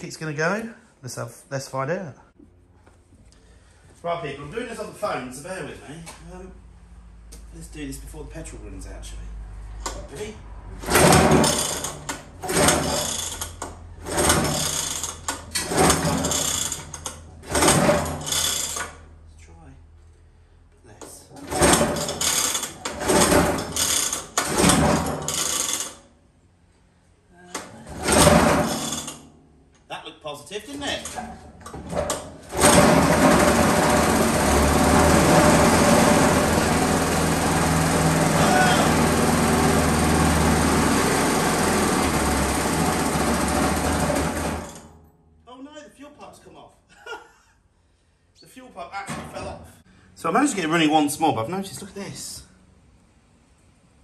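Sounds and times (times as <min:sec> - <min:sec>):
recoil starter cord rasping: 0:10.8 - 0:19.0, 0:21.4 - 0:26.0, 0:32.1 - 0:44.9
lawnmower engine running: 0:32.5 - 0:44.8.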